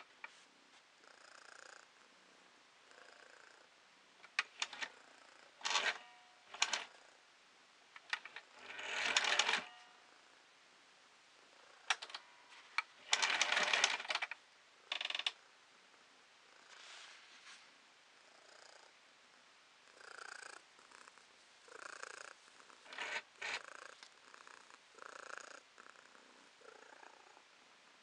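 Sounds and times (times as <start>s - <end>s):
sewing machine stitching: 4.4s - 4.9s, 5.6s - 6.9s, 8.0s - 9.8s, 12.9s - 15.3s, 22.8s - 23.6s
sharp clicks: 11.9s - 12.2s.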